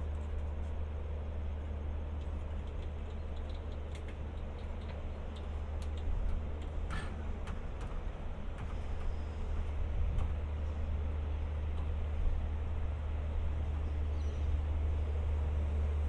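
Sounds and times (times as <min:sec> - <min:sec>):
diesel train idling: 0:00.0 - 0:16.0
light ticks and clicks: 0:02.2 - 0:08.0.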